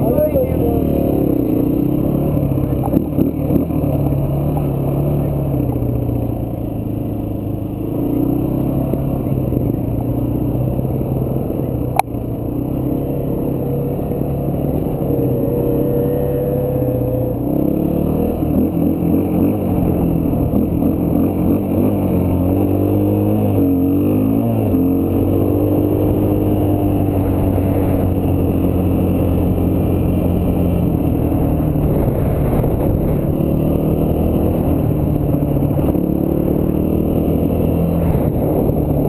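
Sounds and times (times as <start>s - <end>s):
dirt bike engine revving: 12.6s - 39.0s.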